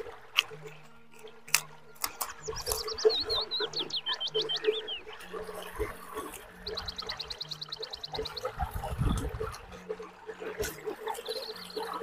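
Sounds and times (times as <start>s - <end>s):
chewing and lip-smacking: 0.0s - 12.0s
bird chirping: 1.2s - 9.3s, 11.1s - 12.0s.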